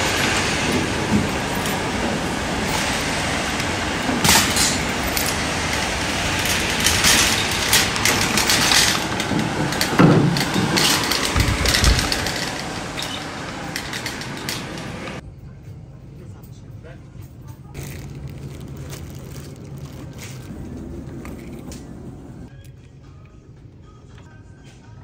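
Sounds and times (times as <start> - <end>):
shopping cart rattling and clanking: 0.0 - 15.2.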